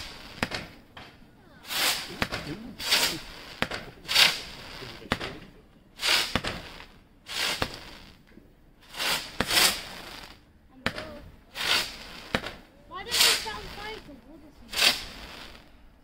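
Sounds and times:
firework hissing: 0:00.0 - 0:00.9, 0:01.6 - 0:16.0
firework pops: 0:00.0 - 0:14.1, 0:14.7 - 0:15.7.

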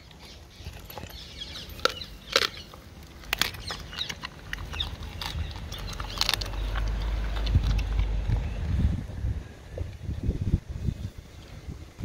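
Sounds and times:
dog crunching food: 0:00.0 - 0:08.5
low rumble: 0:03.2 - 0:12.0.

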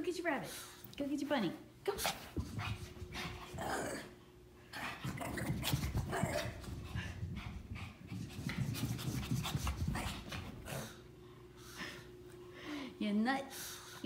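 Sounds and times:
dog panting: 0:04.7 - 0:11.0.

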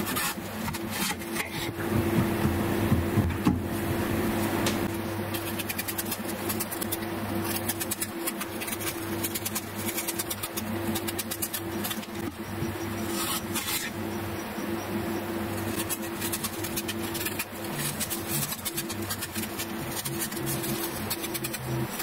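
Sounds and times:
metal edge scraping apple skin: 0:00.0 - 0:01.7, 0:05.2 - 0:14.0, 0:15.5 - 0:22.0
steady low hum: 0:00.0 - 0:22.0.

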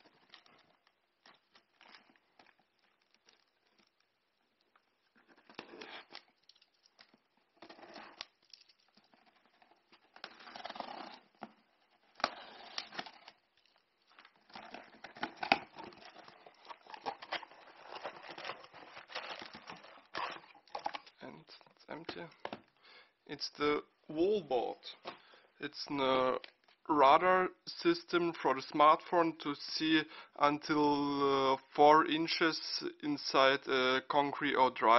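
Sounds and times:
plastic packaging crinkling: 0:00.0 - 0:22.4
packing tape tearing: 0:05.1 - 0:21.2.

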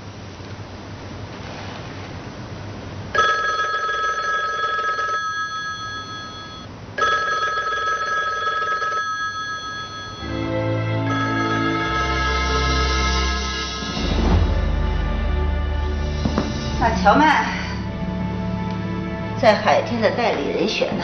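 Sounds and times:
telephone ringing: 0:03.2 - 0:13.7
music: 0:10.2 - 0:21.0.

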